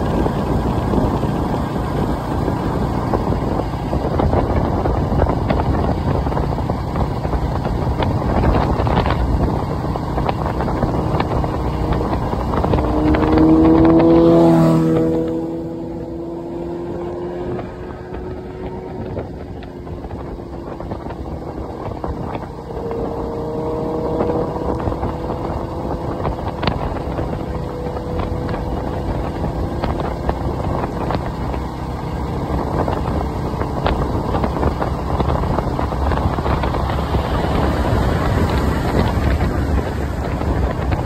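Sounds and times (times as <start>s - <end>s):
motorcycle engine hum: 0.0s - 41.0s
wind rushing over microphone: 0.0s - 41.0s.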